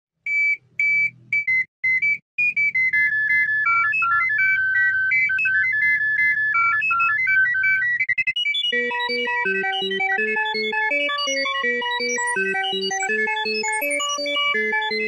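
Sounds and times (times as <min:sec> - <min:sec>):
electronic alarm tune: 0:00.4 - 0:15.0
high electronic beeps: 0:08.4 - 0:15.0.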